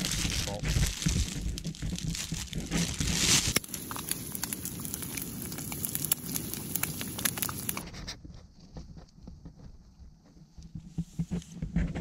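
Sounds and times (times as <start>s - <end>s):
eggs sizzling in a pan: 3.0s - 7.8s.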